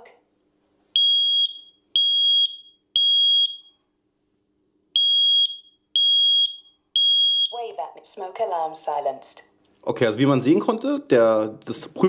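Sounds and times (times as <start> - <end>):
smoke alarm beeping: 1.0 - 3.9, 5.0 - 7.7.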